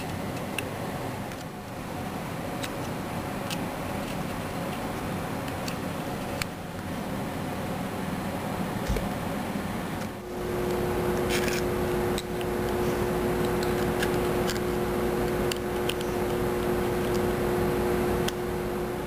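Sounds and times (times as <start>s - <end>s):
fingers handling plastic parts: 0.0s - 6.9s, 10.0s - 17.5s
machine-like hum: 0.0s - 19.0s.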